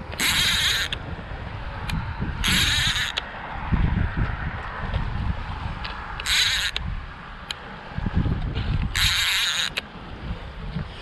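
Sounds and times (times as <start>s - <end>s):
handling and wind thumps: 0.0s - 11.0s
fishing reel rasping: 0.2s - 1.0s, 2.4s - 3.2s, 6.2s - 6.8s, 8.9s - 9.8s.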